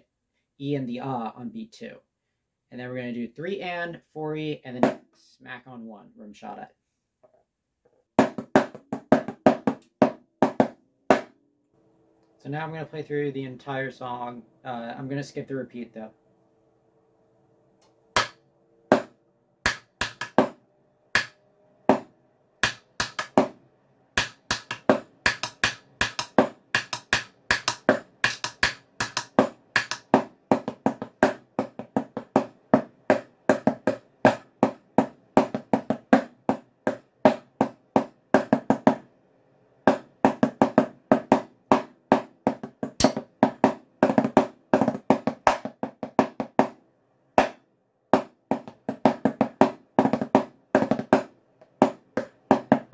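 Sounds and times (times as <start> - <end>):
drumsticks on practice pad: 18.2 - 23.6, 24.2 - 36.3, 39.9 - 45.7.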